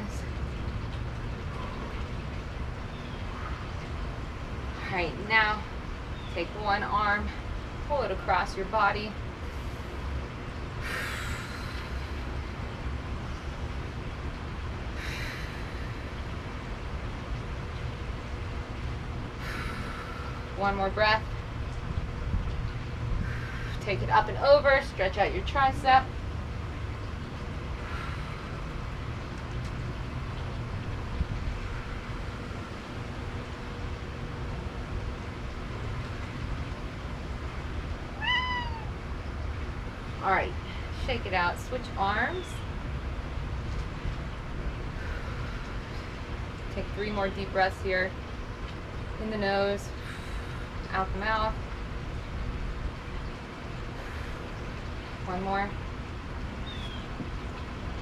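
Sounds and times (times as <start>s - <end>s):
steady low rumble: 0.0s - 58.0s
woman exhaling deeply: 10.8s - 12.1s
cat meowing: 38.2s - 38.9s.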